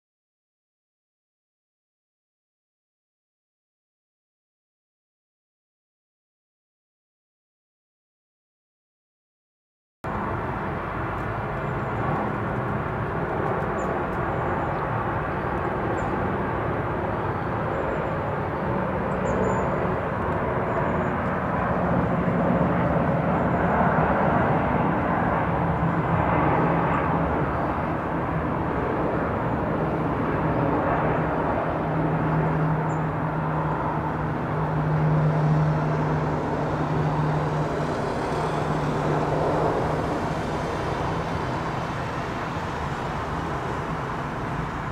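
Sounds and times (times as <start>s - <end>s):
distant jet engine rumble: 10.1s - 44.9s.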